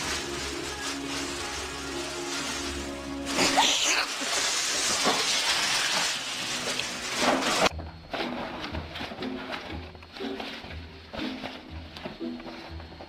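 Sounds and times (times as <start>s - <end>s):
background music: 0.0s - 4.2s, 5.6s - 13.0s
plastic bag crackling: 0.0s - 7.7s.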